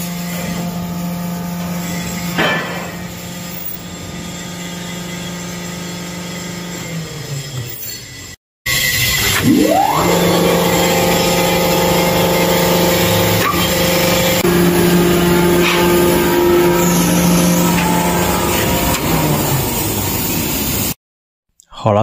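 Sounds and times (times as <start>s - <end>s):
electric motor humming: 0.0s - 21.0s.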